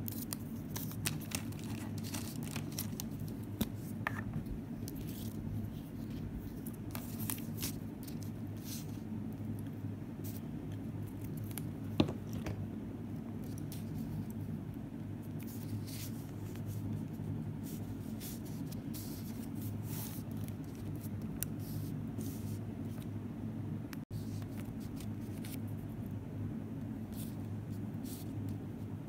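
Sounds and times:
paper rustling: 0.0 - 9.0
steady low hum: 0.0 - 29.0.

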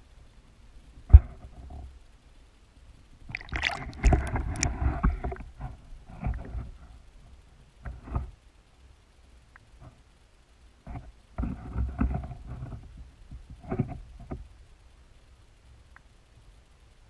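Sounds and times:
underwater knocks: 3.3 - 5.4
muffled underwater sloshing: 3.3 - 6.8.

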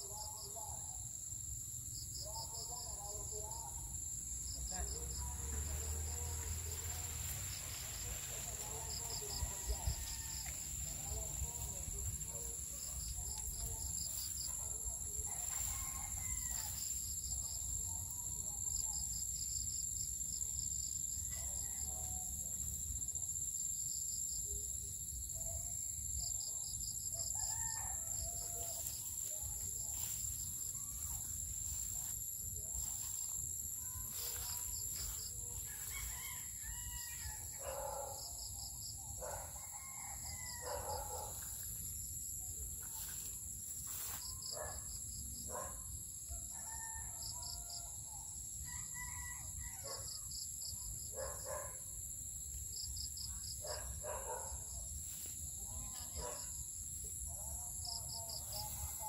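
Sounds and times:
roosters crowing: 15.3 - 16.9, 27.3 - 29.1, 34.4 - 38.2, 39.2 - 41.4, 48.7 - 50.0.

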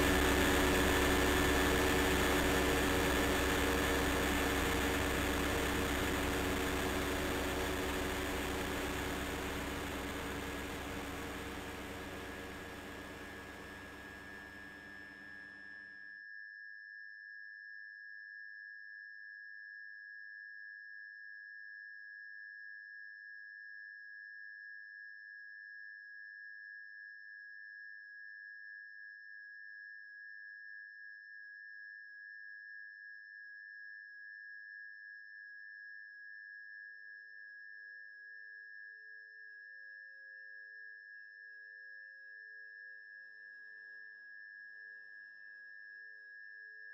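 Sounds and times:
faint lower tones: 0.0 - 15.5
high sustained tone: 0.0 - 15.6.

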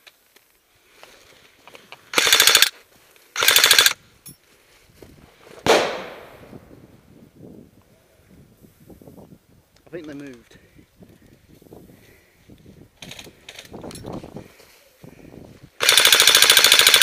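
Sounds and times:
airsoft rifle full-auto bursts: 2.1 - 2.7, 3.4 - 4.0, 15.8 - 17.0
single sharp crack: 5.6 - 6.4.

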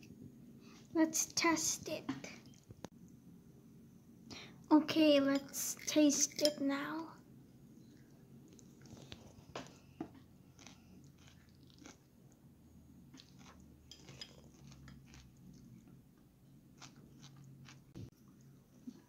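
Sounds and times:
chewing crunch: 10.5 - 12.1, 13.1 - 16.0, 16.8 - 17.9.

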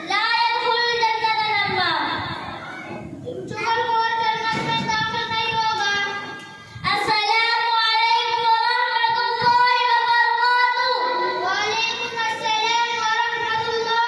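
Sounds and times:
child singing: 3.4 - 14.0.

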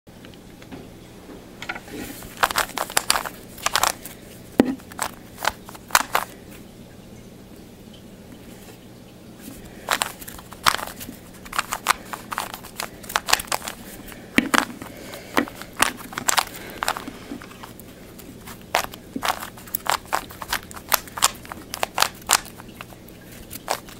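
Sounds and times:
plastic puzzle cube clicking turns: 2.2 - 4.2, 4.8 - 6.4, 9.8 - 23.9.

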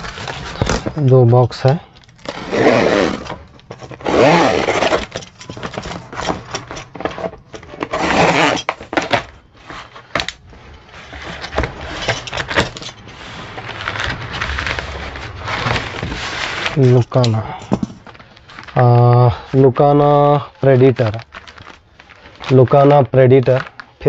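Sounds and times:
cardboard scraping and rustling: 0.0 - 23.9
cloth bag shifting against cardboard: 2.0 - 19.6.

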